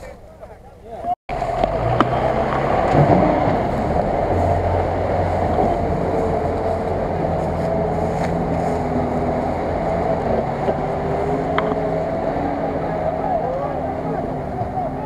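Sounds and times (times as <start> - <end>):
truck engine under load: 1.3 - 15.0
water churning around wheels: 1.3 - 15.0.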